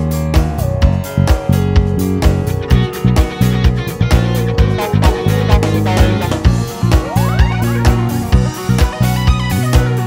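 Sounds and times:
bass guitar low notes: 0:00.0 - 0:10.0
guitar: 0:00.0 - 0:10.0
drum hits: 0:02.3 - 0:08.6.

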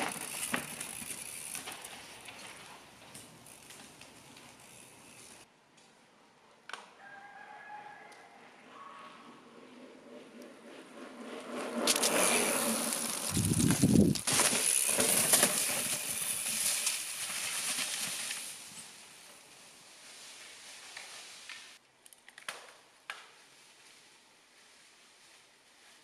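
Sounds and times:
bike tyres crunching over leaves: 0:00.0 - 0:05.4, 0:11.5 - 0:21.8, 0:23.3 - 0:26.0.

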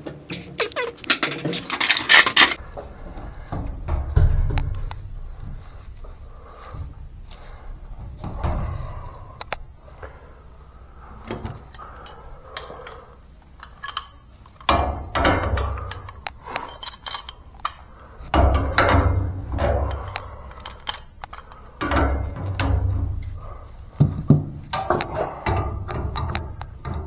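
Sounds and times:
clattering and rustling: 0:00.0 - 0:27.0
metal tools and pipe fittings clinking: 0:00.3 - 0:02.6, 0:11.0 - 0:27.0.

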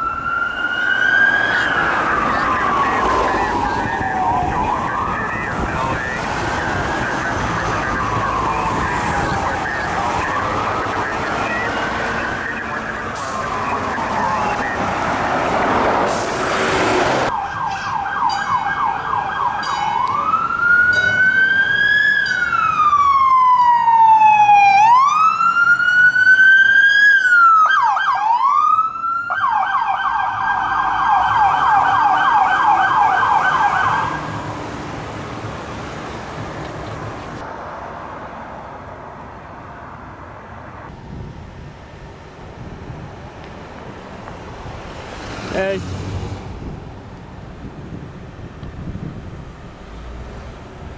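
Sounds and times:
police siren yelp and wail: 0:00.0 - 0:15.8, 0:17.2 - 0:34.5
road noise: 0:00.0 - 0:50.9.

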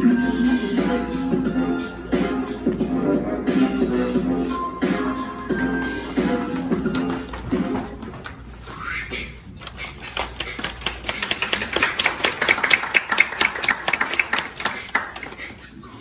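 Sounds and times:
audience clapping: 0:06.1 - 0:08.7, 0:09.6 - 0:15.8.

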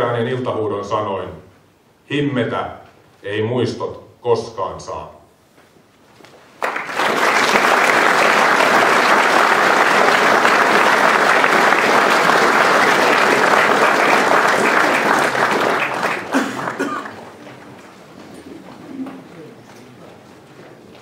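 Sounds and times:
audience applauding: 0:06.6 - 0:18.0.

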